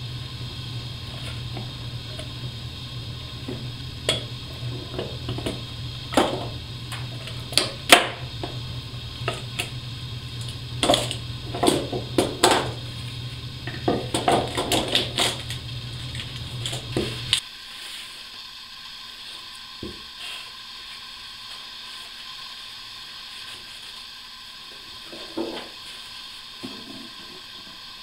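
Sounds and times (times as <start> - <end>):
steady low hum: 0.0 - 17.4.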